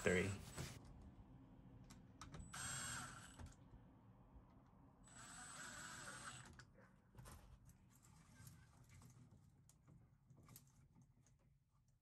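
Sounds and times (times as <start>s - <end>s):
power ratchet motor whine: 2.5s - 3.4s.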